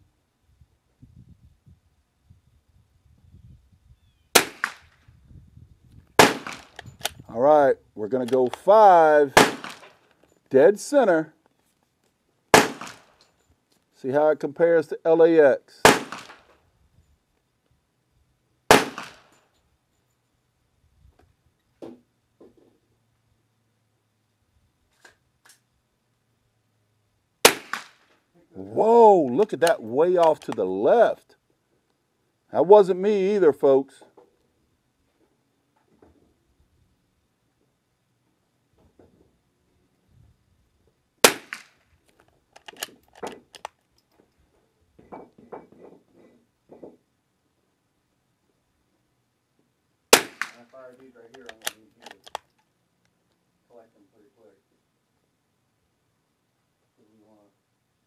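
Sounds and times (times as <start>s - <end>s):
rifle shot crack: 4.3s - 5.0s, 6.2s - 7.2s, 9.3s - 10.0s, 12.5s - 13.2s, 15.8s - 16.5s, 18.7s - 19.3s, 27.4s - 28.1s, 41.2s - 41.8s, 50.1s - 50.8s
rifle mechanism clicking: 42.5s - 43.8s, 51.3s - 52.7s.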